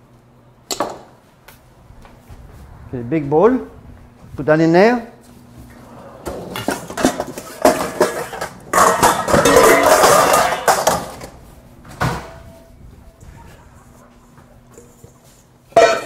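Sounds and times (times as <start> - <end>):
metal bowls clattering: 6.2 - 11.3, 14.7 - 16.0.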